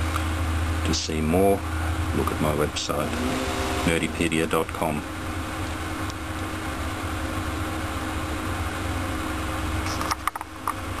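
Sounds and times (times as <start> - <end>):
low mechanical hum with hiss: 0.0 - 11.0.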